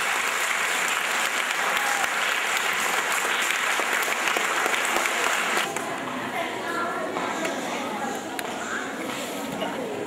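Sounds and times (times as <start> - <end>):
audience clapping: 0.0 - 5.8.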